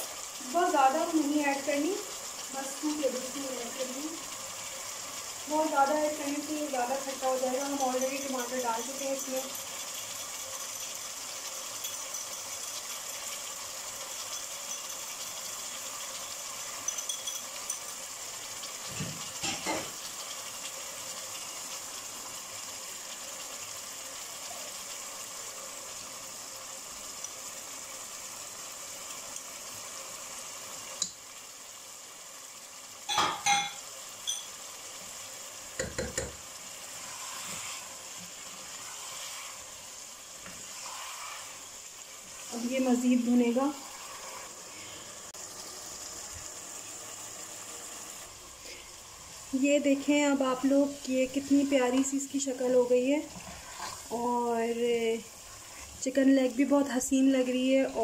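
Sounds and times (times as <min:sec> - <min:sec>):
curry sizzling in a pot: 0:00.0 - 0:58.0
cutlery clinking on bowl: 0:16.8 - 0:17.9, 0:33.1 - 0:34.6.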